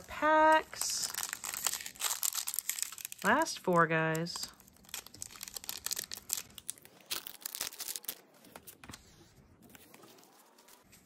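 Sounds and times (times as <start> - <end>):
foil wrapper tearing and crinkling: 0.6 - 8.3.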